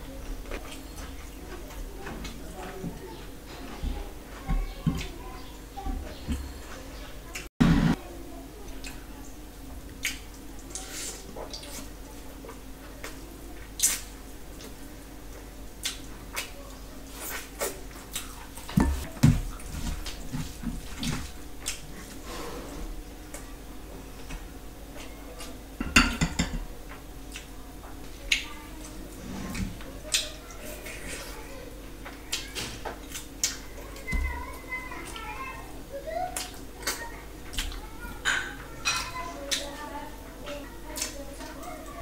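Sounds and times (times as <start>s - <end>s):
mouth clicks and chewing smacks: 10.0s - 10.9s, 15.8s - 16.6s.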